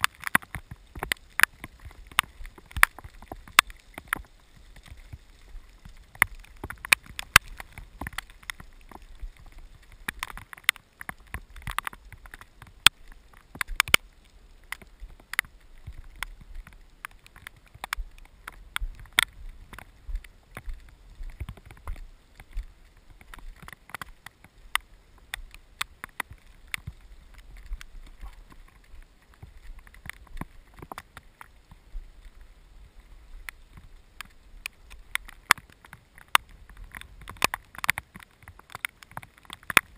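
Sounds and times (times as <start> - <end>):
raindrops tapping on housing: 0.0 - 39.9
faint low wind rumble: 11.3 - 35.4.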